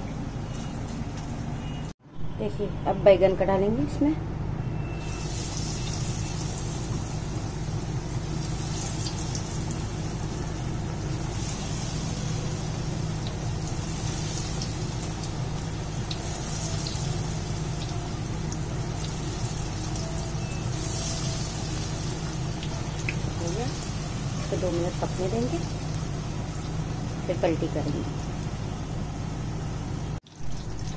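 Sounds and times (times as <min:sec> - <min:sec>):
deep-frying sizzle: 0:04.8 - 0:30.9
oil crackles and pops: 0:12.8 - 0:20.1, 0:20.7 - 0:27.0, 0:30.2 - 0:30.9.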